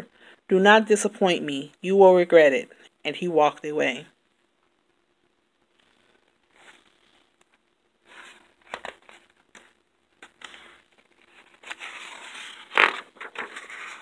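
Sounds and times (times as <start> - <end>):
book pages rustling: 5.7 - 14.0
page slapping: 8.1 - 14.0.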